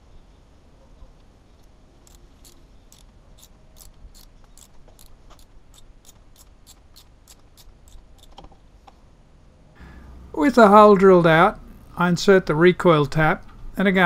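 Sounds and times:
ratchet wrench clicking: 0:02.0 - 0:08.3.

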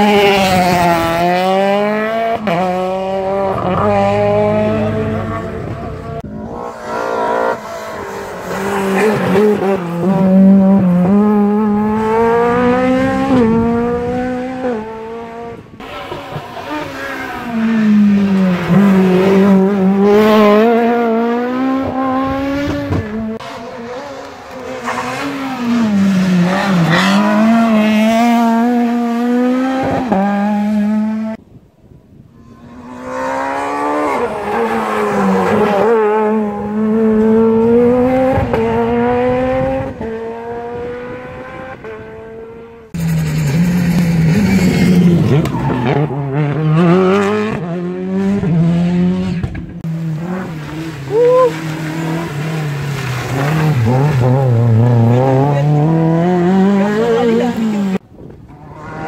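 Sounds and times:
rally cars revving hard: 0:00.0 - 0:31.4, 0:32.5 - 0:59.0.

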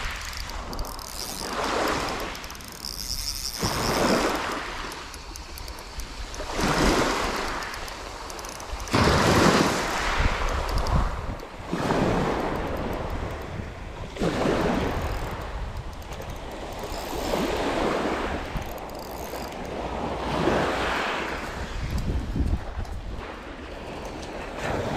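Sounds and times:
waves washing onto shingle: 0:00.0 - 0:00.8, 0:08.9 - 0:12.9, 0:19.7 - 0:24.9
fishing reel chirring: 0:00.0 - 0:24.3
wind rumbling on microphone: 0:00.0 - 0:24.9.

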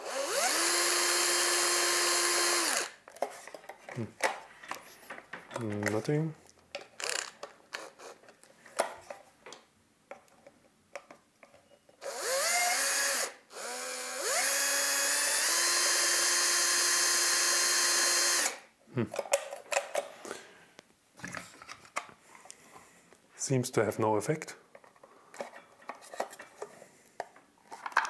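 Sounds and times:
cordless drill whining: 0:00.0 - 0:03.0, 0:12.0 - 0:18.6.

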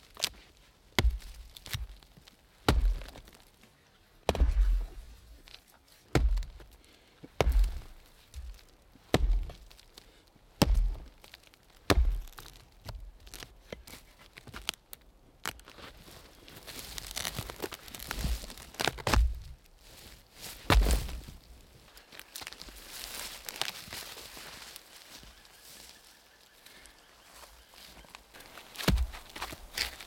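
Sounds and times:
axe chopping tree trunk: 0:01.0 - 0:02.0, 0:02.6 - 0:03.4, 0:04.2 - 0:05.0, 0:06.1 - 0:06.7, 0:07.4 - 0:09.8, 0:10.6 - 0:13.1, 0:18.2 - 0:19.5, 0:20.6 - 0:21.2, 0:28.6 - 0:30.0.

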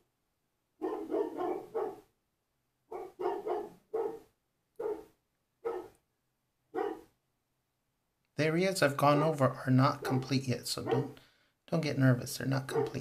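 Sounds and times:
dog barking: 0:00.8 - 0:02.1, 0:02.9 - 0:06.0, 0:06.7 - 0:07.1, 0:10.0 - 0:11.2, 0:12.7 - 0:13.0.

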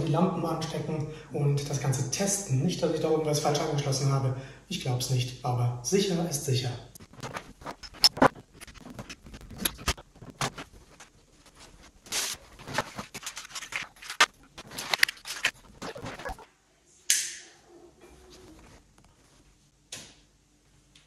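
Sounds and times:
cable connectors clicking and rustling: 0:07.0 - 0:16.4.

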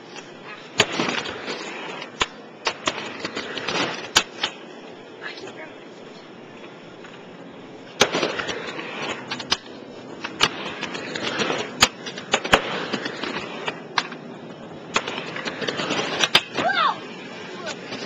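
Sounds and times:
skateboard wheels rumbling: 0:00.0 - 0:18.0
skateboard clacking on ramp: 0:14.9 - 0:18.0.

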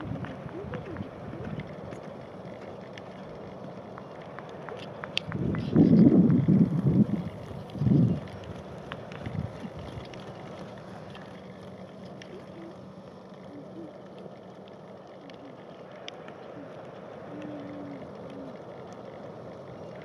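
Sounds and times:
wind rumble on microphone: 0:00.0 - 0:03.5, 0:04.3 - 0:12.8.

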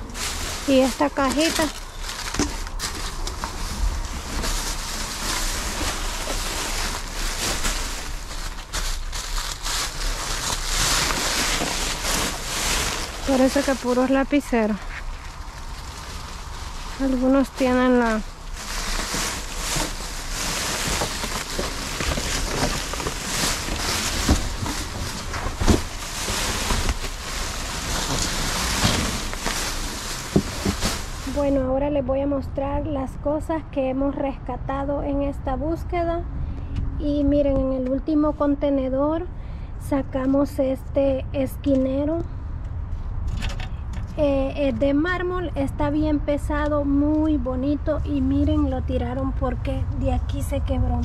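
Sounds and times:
plastic bags crinkling: 0:00.0 - 0:31.6.

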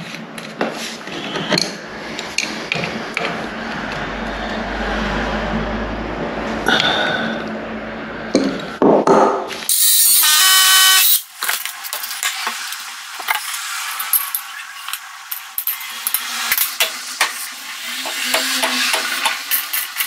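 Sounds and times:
cordless drill whine: 0:09.7 - 0:11.3.

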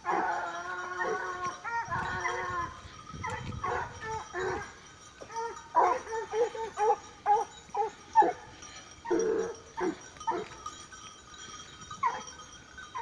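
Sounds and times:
dog barking: 0:00.0 - 0:00.4, 0:01.0 - 0:02.6, 0:03.2 - 0:08.5, 0:09.1 - 0:10.5, 0:12.0 - 0:12.3.

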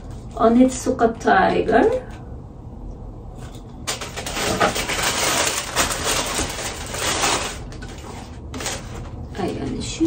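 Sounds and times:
paper crinkling and rustling: 0:03.8 - 0:10.0.

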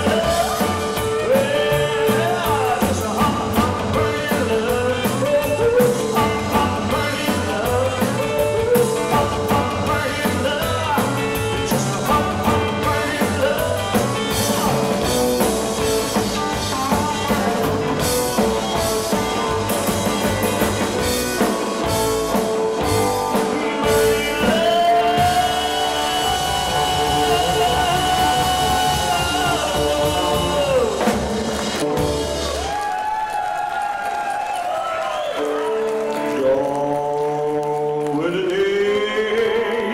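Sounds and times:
man singing: 0:00.0 - 0:31.3, 0:36.1 - 0:39.9
rock and roll band playing: 0:00.0 - 0:39.9.

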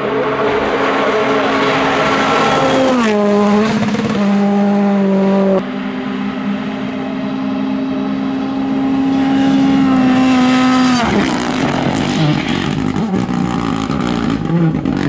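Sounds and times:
rally car engines at high revs: 0:00.0 - 0:15.0.

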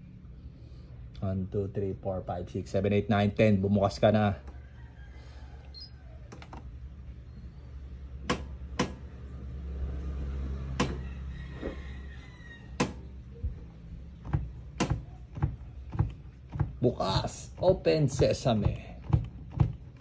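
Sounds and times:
washing machine hum: 0:12.7 - 0:20.0.

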